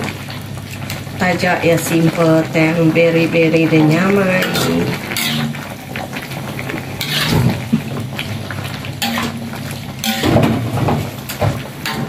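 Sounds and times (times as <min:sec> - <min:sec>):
metal ladle scraping wok: 0:04.3 - 0:05.7, 0:07.0 - 0:07.6, 0:09.0 - 0:10.5.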